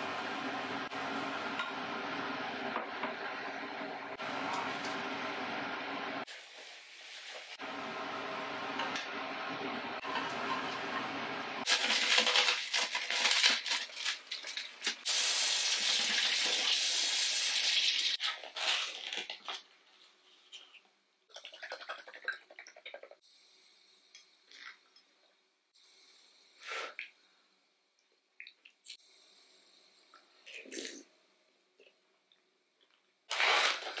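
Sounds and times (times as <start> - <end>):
kitchen tap running and splashing: 14.3 - 18.2.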